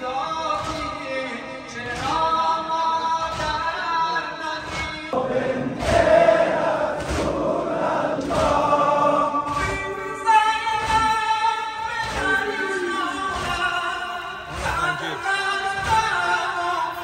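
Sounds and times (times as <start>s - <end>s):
crowd of men chanting: 4.6s - 17.0s.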